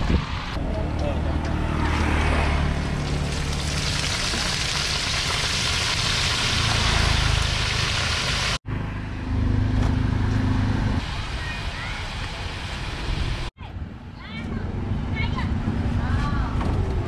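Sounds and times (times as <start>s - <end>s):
low engine hum: 0.0s - 11.2s
food deep-frying in oil: 2.9s - 8.6s.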